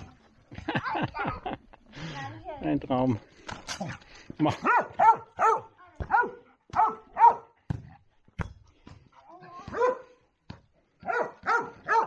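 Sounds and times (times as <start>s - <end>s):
dog barking: 4.6s - 7.6s, 9.7s - 10.1s, 11.0s - 12.0s.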